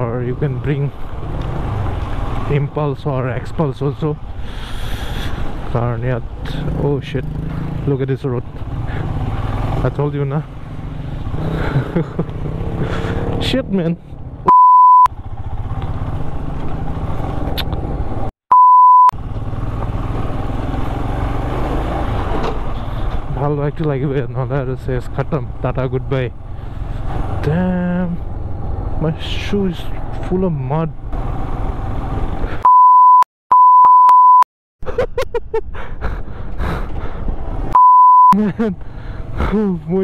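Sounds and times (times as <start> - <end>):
motorcycle engine running: 6.5 - 14.4, 15.1 - 18.3, 19.2 - 23.7
censor bleep: 14.5 - 15.1, 18.5 - 19.1, 32.6 - 34.5, 37.8 - 38.4.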